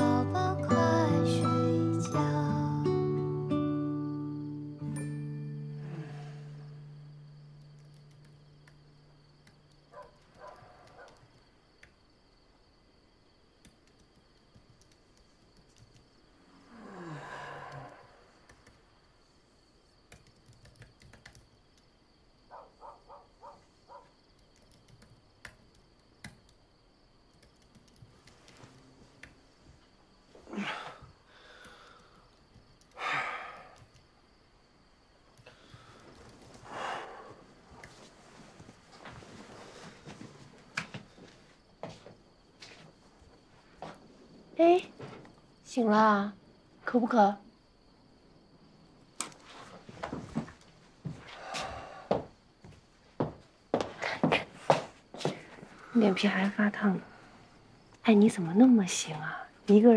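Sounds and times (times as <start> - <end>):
background music: 0.0 - 7.2
man sighing heavily: 30.5 - 31.9, 51.3 - 52.3
soft rustles: 37.6 - 44.4, 49.4 - 51.4.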